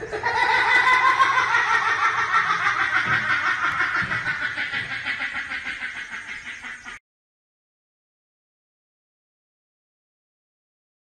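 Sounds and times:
person laughing hard: 0.0s - 5.6s.

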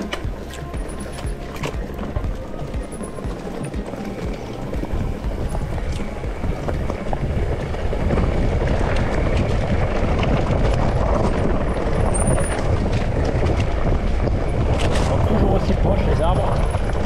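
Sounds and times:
bike rattles and knocks: 0.0s - 17.0s
bike tyres rumbling on trail: 0.0s - 17.0s
wind on microphone: 0.0s - 17.0s.

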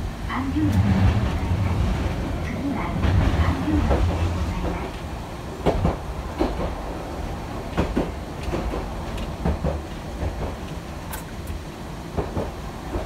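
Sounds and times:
streetcar rumbling: 0.0s - 13.0s
wheels clacking over rail joints: 7.7s - 11.3s.

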